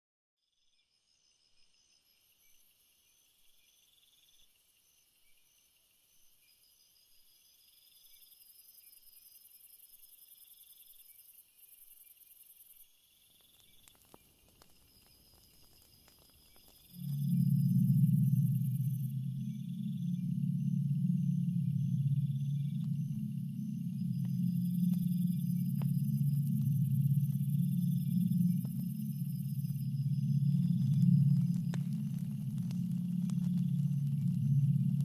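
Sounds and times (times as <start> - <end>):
crickets chirping: 1.1 - 35.0
loud deep drone: 16.9 - 35.0.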